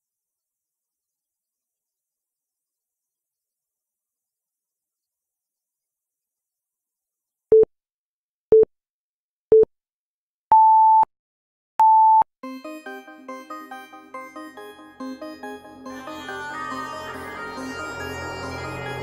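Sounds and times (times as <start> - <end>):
light background music: 12.5 - 19.0.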